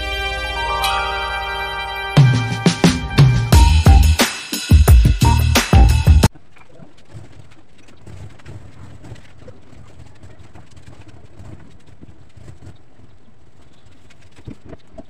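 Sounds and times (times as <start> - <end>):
loud music: 0.0 - 6.3.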